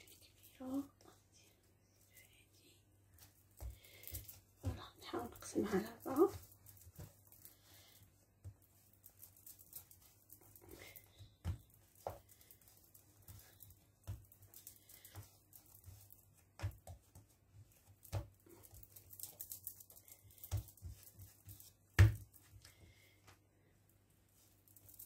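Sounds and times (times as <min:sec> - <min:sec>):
hands patting dough: 0:03.1 - 0:25.0
dough thump on countertop: 0:22.0 - 0:22.2.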